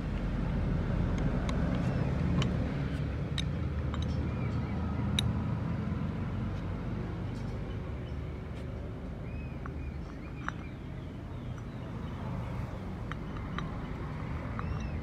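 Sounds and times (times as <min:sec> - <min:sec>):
engine rumbling: 0:00.0 - 0:15.0
light metallic clicks and taps: 0:01.1 - 0:05.4, 0:09.4 - 0:11.9, 0:12.5 - 0:15.0.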